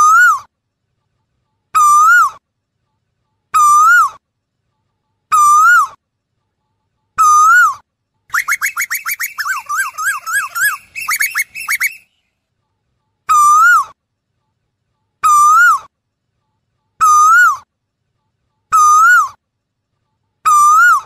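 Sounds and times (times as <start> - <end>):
bird whistled calls: 7.2 - 12.2, 20.5 - 21.0.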